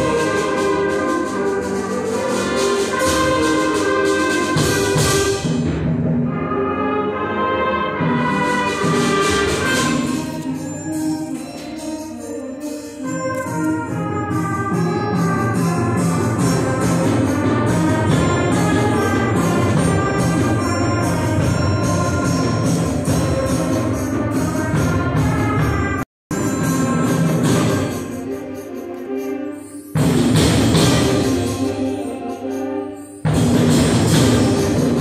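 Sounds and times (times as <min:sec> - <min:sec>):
percussion beat: 0:00.0 - 0:06.4, 0:08.1 - 0:35.0
concert band playing: 0:00.0 - 0:35.0.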